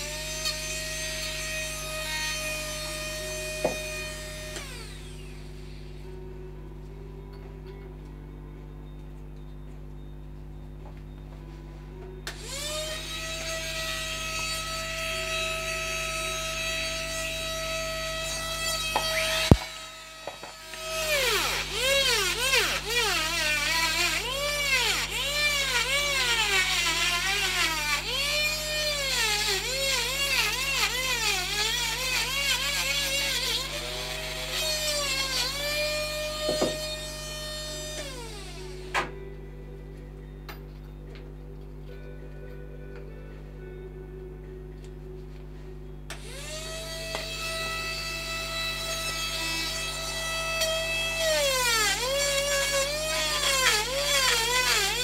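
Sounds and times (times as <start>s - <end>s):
rotary tool whining on wood: 0.0s - 6.2s, 12.2s - 39.2s, 46.1s - 55.0s.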